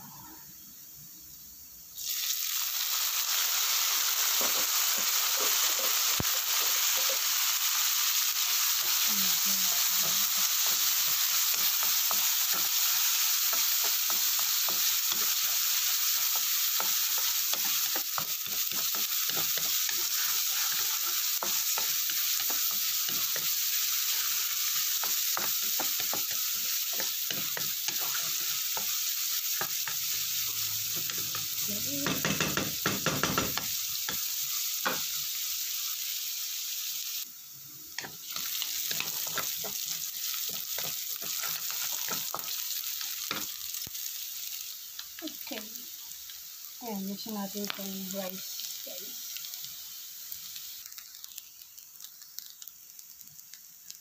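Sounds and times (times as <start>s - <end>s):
vegetables sizzling in pan: 0.0s - 54.0s.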